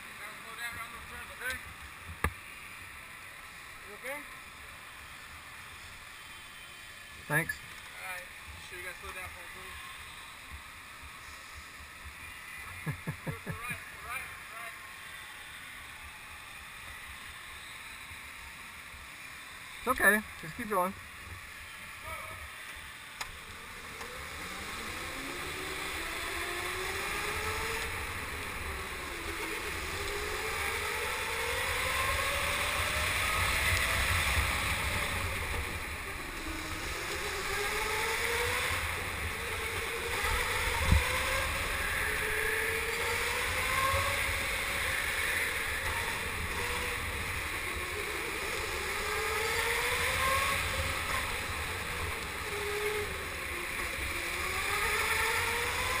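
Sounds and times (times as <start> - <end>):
electric kart motor whining: 0.0 - 56.0
wind noise: 40.1 - 42.4.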